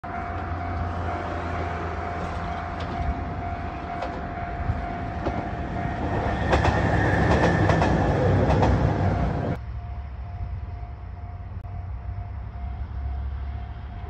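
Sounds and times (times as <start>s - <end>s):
level crossing alarm ringing: 0.0s - 13.6s
diesel train engine rumble: 0.0s - 14.0s
wheels clicking over rail joints: 1.7s - 9.6s.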